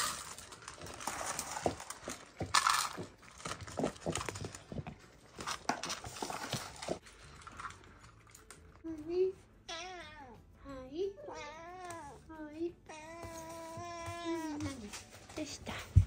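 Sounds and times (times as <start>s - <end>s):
kibble clicking into bowls: 0.0s - 8.8s
kibble rattling: 0.0s - 8.8s.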